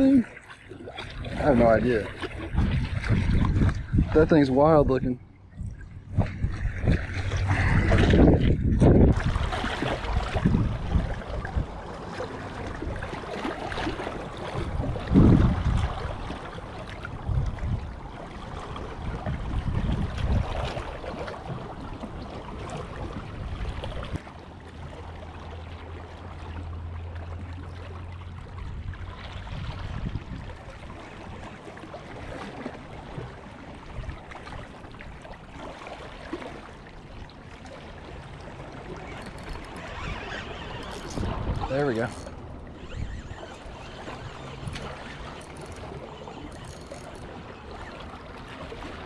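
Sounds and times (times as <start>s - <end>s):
small waves lapping against rocks: 0.0s - 49.0s
wind buffeting microphone: 0.8s - 13.2s, 14.1s - 24.2s, 28.6s - 31.5s, 39.0s - 47.5s.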